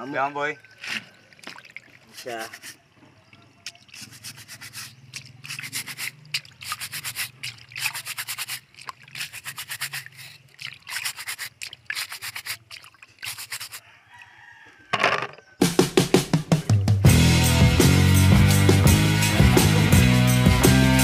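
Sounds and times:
plastic brush scrubbing shells: 2.0s - 2.9s, 3.6s - 13.8s.

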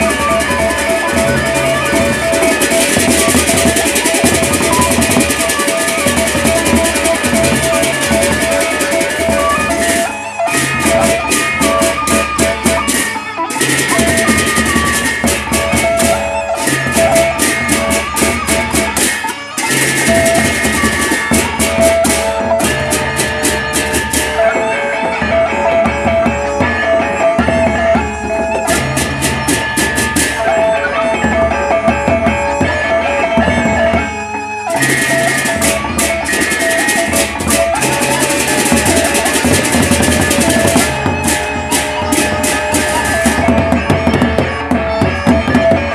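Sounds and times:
barrel drums beaten with sticks: 0.0s - 24.5s, 34.7s - 45.9s
hand cymbals clashing: 0.0s - 45.8s
gongs ringing: 0.0s - 45.9s.

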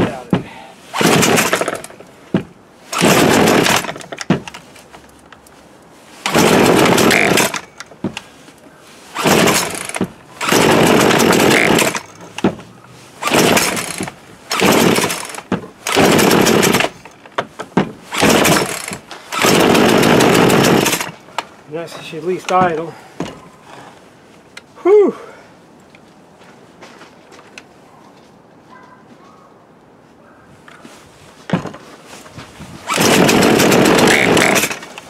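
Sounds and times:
chainsaw revving: 0.9s - 2.0s, 2.9s - 4.3s, 6.2s - 7.8s, 9.1s - 12.3s, 13.2s - 17.1s, 18.1s - 21.2s, 32.8s - 35.0s.

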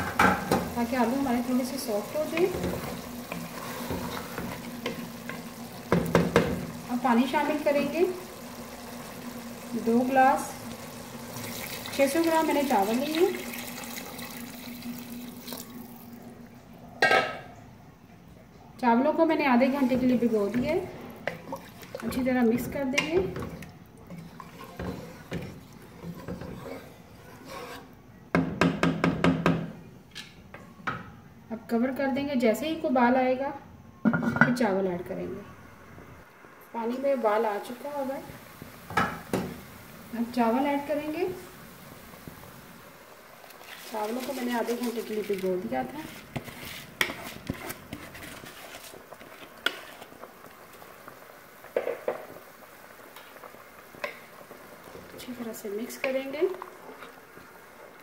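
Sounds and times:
wooden spatula stirring in pot: 0.0s - 8.0s, 19.6s - 28.0s, 43.5s - 50.8s, 54.8s - 58.0s
water boiling and bubbling: 0.0s - 16.9s, 18.8s - 28.1s, 35.5s - 58.0s.

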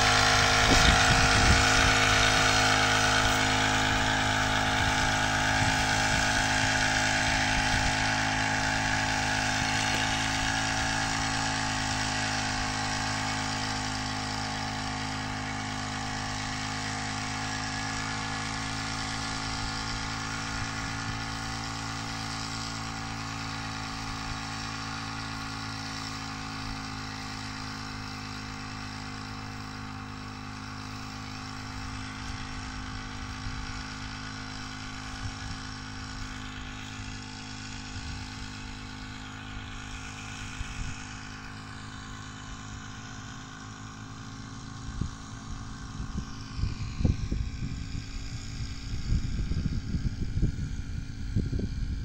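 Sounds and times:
wind buffeting microphone: 0.0s - 9.8s, 44.8s - 52.0s
two-stroke sprayer engine whining: 0.0s - 52.0s.

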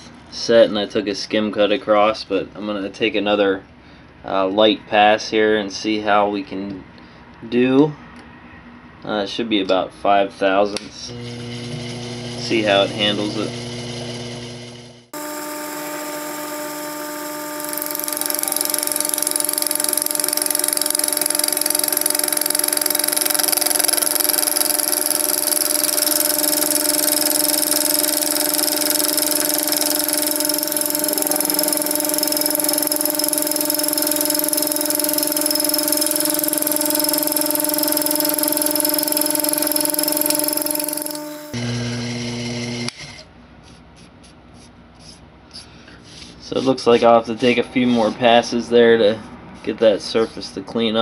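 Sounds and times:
milling machine motor whine: 11.1s - 42.9s.

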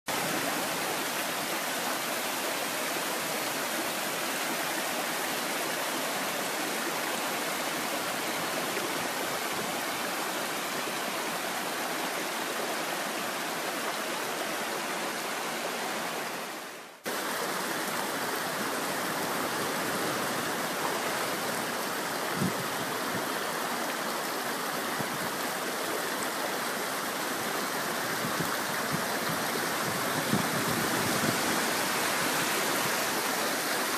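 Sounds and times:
creek running over stones: 0.1s - 33.9s
surf washing between boulders: 15.1s - 33.9s.

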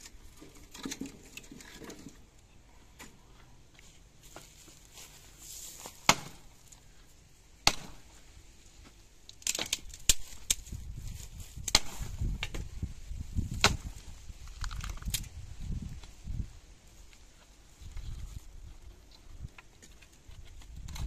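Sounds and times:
axe chopping wood: 6.0s - 6.5s, 7.6s - 8.1s, 11.6s - 12.6s, 13.4s - 14.0s.

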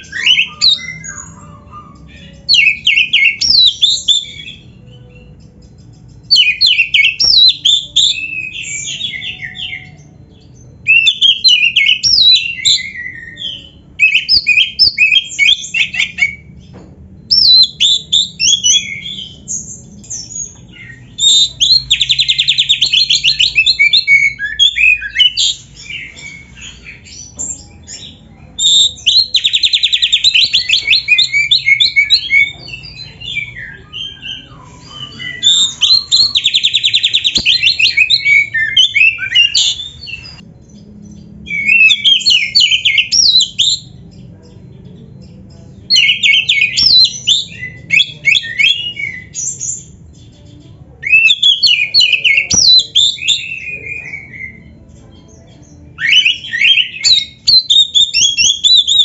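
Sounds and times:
bird singing whistled phrases: 0.0s - 4.6s, 6.3s - 10.0s, 10.8s - 16.5s, 17.3s - 19.4s, 20.2s - 26.8s, 27.9s - 40.4s, 41.5s - 43.9s, 45.9s - 49.8s, 51.0s - 54.8s, 56.0s - 59.0s
bird rapid trill: 56.0s - 59.0s.

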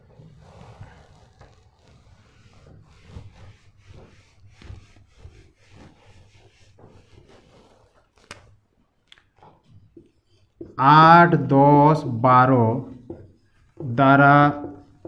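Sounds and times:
eraser rubbing on whiteboard: 0.0s - 8.7s, 9.4s - 15.0s.

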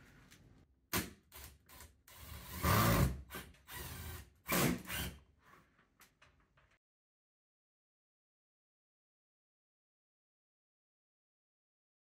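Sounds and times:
cordless drill driving screws: 1.4s - 5.2s.

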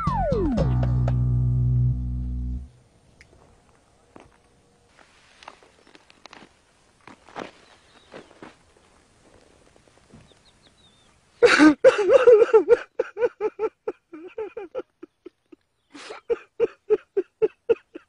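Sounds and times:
man sobbing: 11.4s - 18.0s.

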